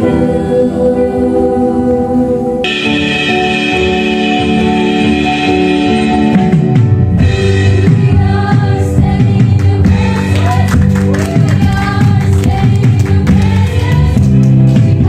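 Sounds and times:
keyboard chords: 0.0 - 15.0
sliding bass note: 2.6 - 7.2
drums steady beat: 2.7 - 15.0
voices singing: 7.8 - 15.0.

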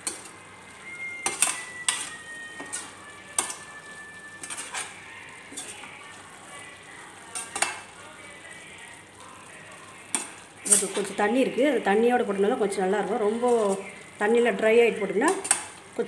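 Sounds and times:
spatula scraping frying pan: 0.0 - 6.0, 7.3 - 7.9, 10.1 - 11.2, 13.3 - 14.0
metal clinks on pan: 1.2 - 2.8, 3.4 - 3.6.

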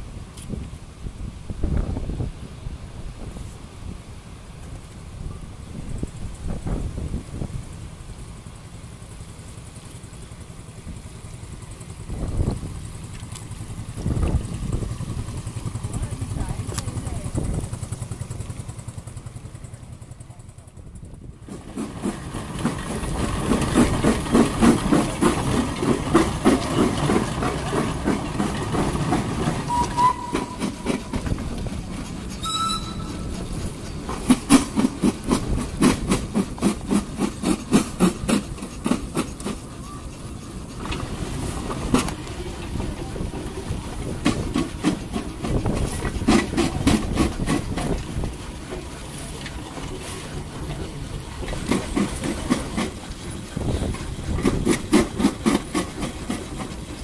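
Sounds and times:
steam whistle toot: 29.7 - 30.8, 32.4 - 33.3.

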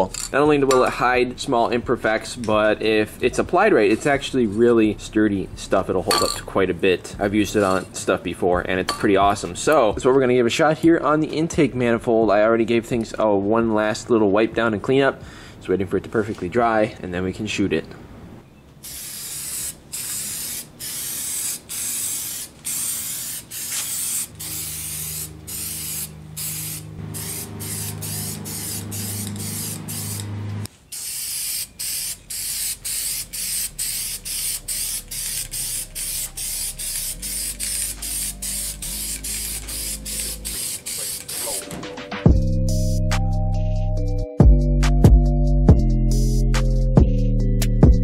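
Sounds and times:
spray can hissing: 18.8 - 30.3, 30.9 - 41.7.

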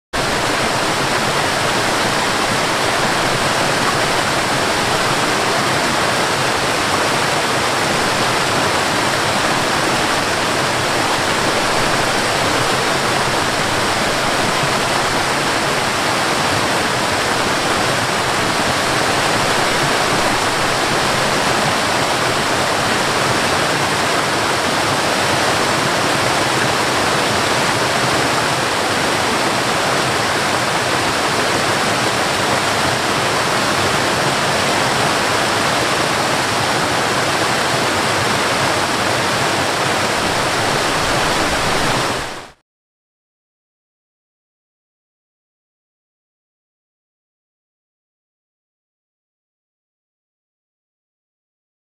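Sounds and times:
waterfall rushing: 0.2 - 42.6.

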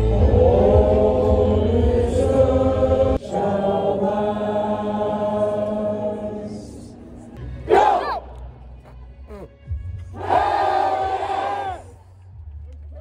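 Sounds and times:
group singing in unison: 0.0 - 7.0.

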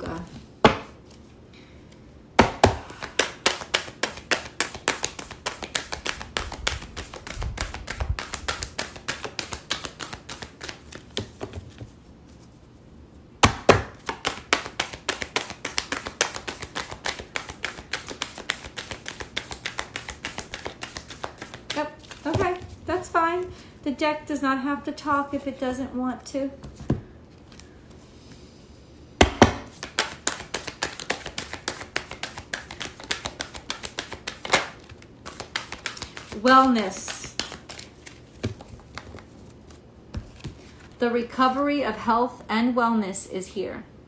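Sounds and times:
cards being shuffled: 2.9 - 12.5, 13.8 - 22.8, 29.7 - 41.0.

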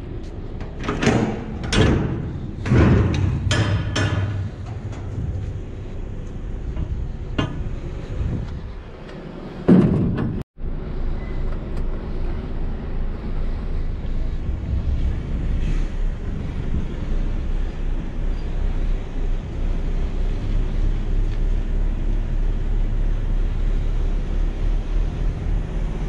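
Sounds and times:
metal container doors clanking: 0.5 - 8.0, 9.6 - 10.4.

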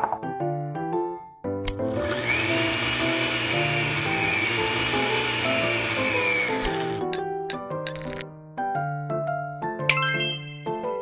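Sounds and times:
electric hand mixer whirring: 1.7 - 7.2.

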